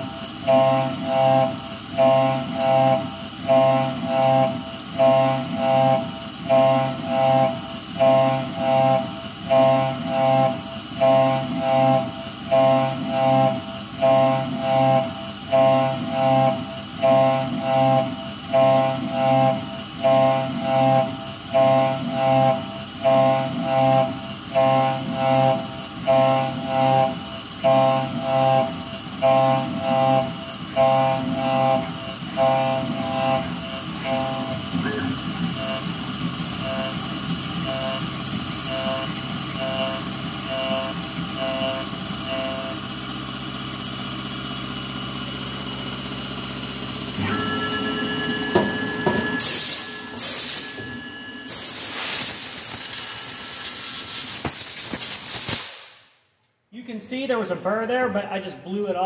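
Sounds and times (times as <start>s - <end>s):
milling machine running: 0.0s - 54.7s
end mill cutting steel: 45.0s - 55.2s
compressed air blow gun hissing: 51.5s - 56.0s.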